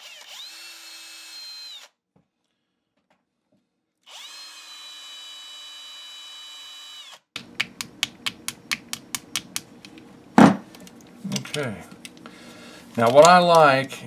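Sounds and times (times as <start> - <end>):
cordless drill whining: 0.0 - 2.0, 4.1 - 7.2.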